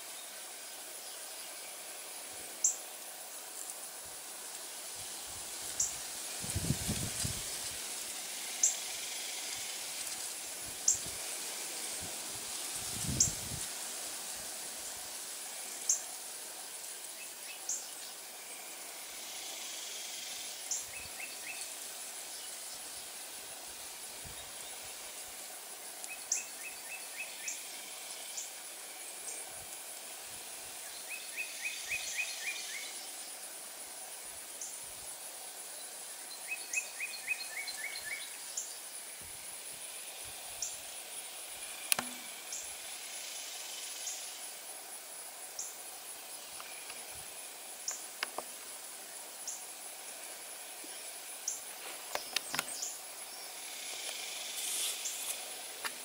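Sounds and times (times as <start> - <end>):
high-pitched insect trill: 0.0 - 56.0
sharp clicks: 41.9 - 42.2.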